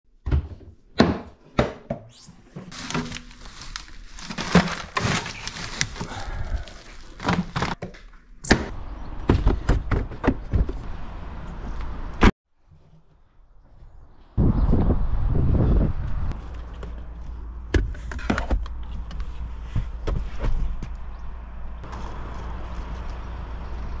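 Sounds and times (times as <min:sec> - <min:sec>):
steady rustling: 0:02.7 - 0:07.8
knocks and thuds: 0:08.5 - 0:10.8.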